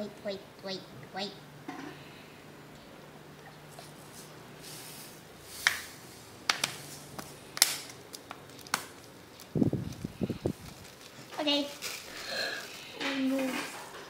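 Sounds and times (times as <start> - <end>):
plastic bottle crinkling: 7.6 - 13.0.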